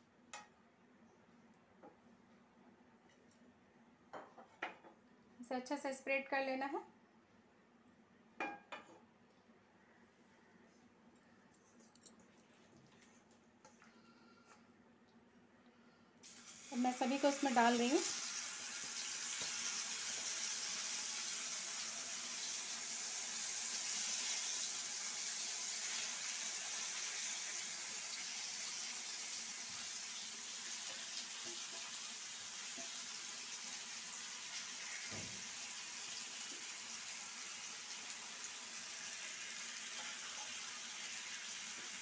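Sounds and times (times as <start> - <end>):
potato slices sizzling in oil: 16.2 - 42.0.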